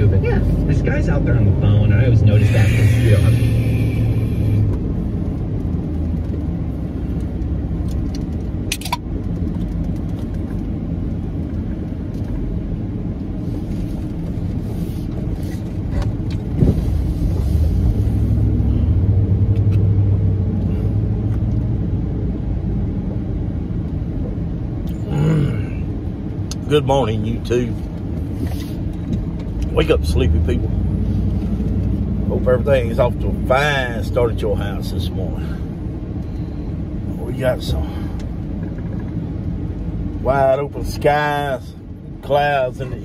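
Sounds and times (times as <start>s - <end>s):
truck engine and road noise: 0.0s - 43.0s.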